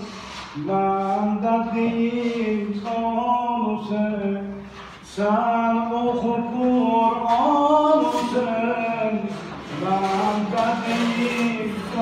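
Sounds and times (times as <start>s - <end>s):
man singing unaccompanied: 0.0s - 12.0s.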